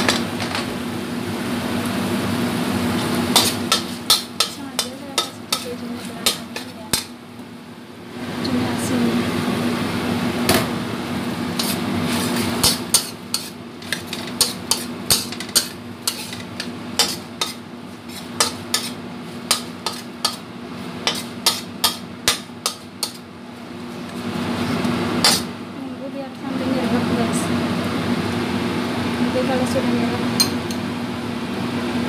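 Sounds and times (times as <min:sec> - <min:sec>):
steady low hum: 0:00.0 - 0:31.8
metal spatula clanking on wok: 0:03.3 - 0:07.1, 0:12.6 - 0:17.6, 0:18.4 - 0:20.4, 0:21.0 - 0:23.2.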